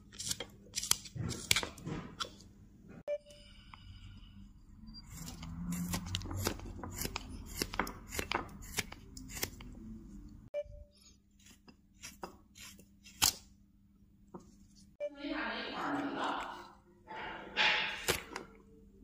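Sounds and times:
gouge scraping wood: 5.1s - 9.6s.

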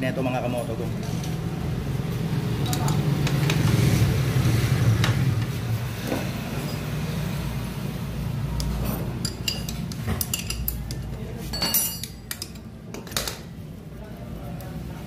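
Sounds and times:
wrenches clinking on metal: 8.8s - 13.4s.

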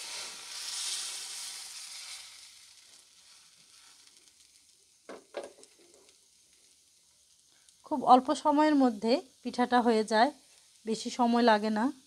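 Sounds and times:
batter sizzling in frying pan: 0.0s - 12.0s.

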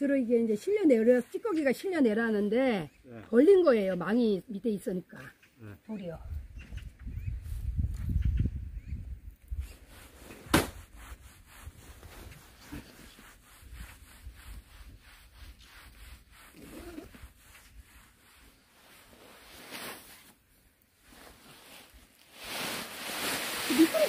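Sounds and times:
hands brushing over woven mat: 0.1s - 2.3s, 9.6s - 24.0s.

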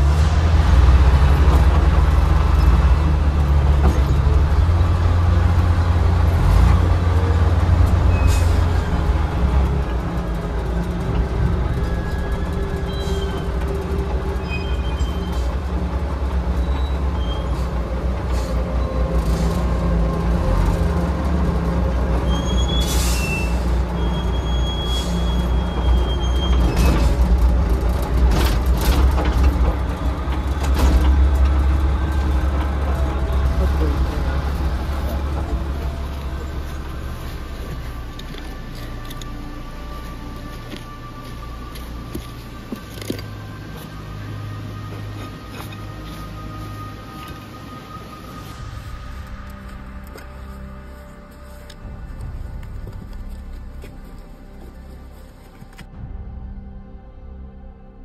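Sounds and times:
diesel engine running: 0.0s - 56.8s
short high squeaks: 14.4s - 15.6s.

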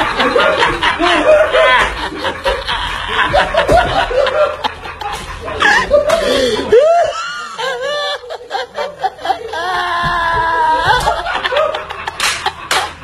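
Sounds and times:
boys laughing and snickering: 0.0s - 13.0s.

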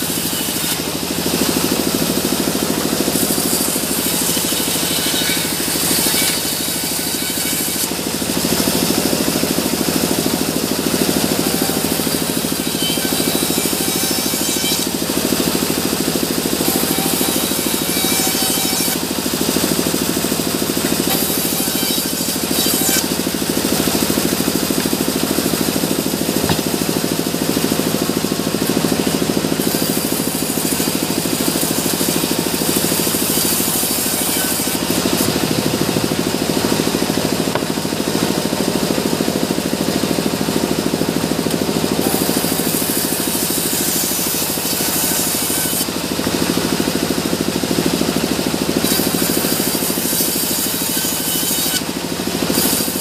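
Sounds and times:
blade hissing through log: 0.0s - 38.4s
bandsaw running: 0.0s - 53.0s.

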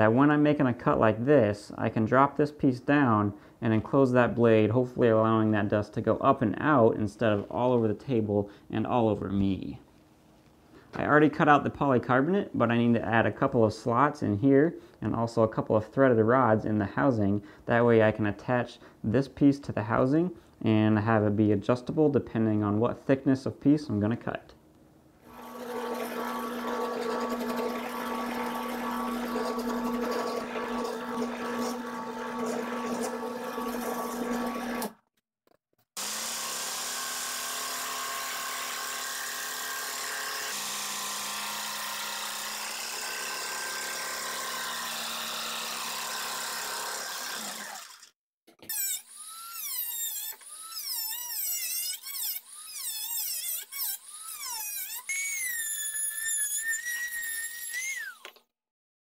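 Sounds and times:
electric tool running: 25.3s - 35.0s, 36.0s - 58.4s
jigsaw cutting plastic sheet: 25.3s - 35.0s, 35.9s - 58.5s
rotary tool cutting steel rod: 25.3s - 35.0s, 36.2s - 48.1s, 48.7s - 58.4s.

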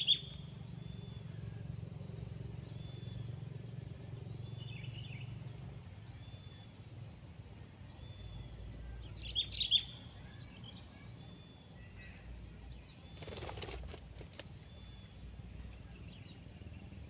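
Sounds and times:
bird chirping: 0.0s - 1.7s, 2.6s - 3.4s, 4.3s - 6.8s, 7.8s - 17.0s
wings flapping: 13.1s - 14.6s.

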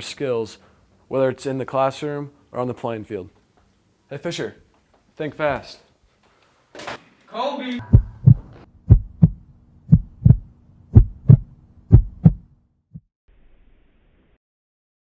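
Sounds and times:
heartbeat thumps: 7.8s - 13.1s.

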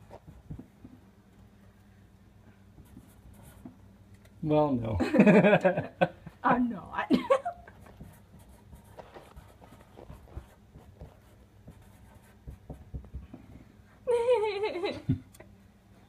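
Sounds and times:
marker scratching on paper: 2.8s - 3.8s, 7.7s - 13.2s.

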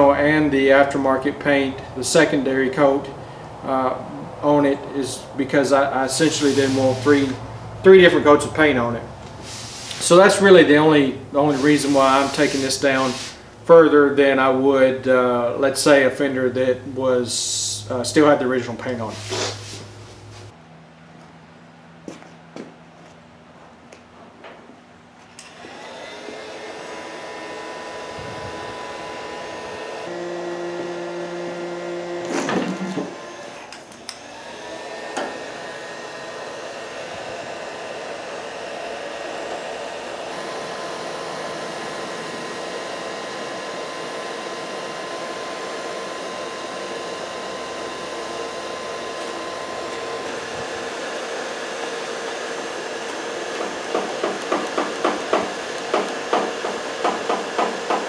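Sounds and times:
heat gun blowing: 6.0s - 7.5s, 9.2s - 13.6s, 19.0s - 20.6s, 25.4s - 58.0s.

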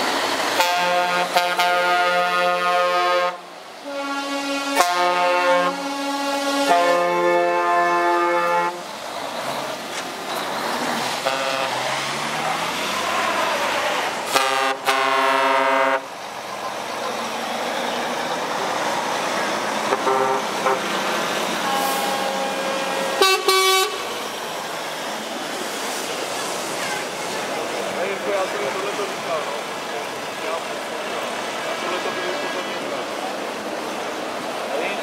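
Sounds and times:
lorry engine and tyre noise: 0.0s - 35.0s
lorry horns: 0.6s - 8.9s, 11.2s - 12.3s, 12.9s - 16.1s, 19.9s - 24.2s.

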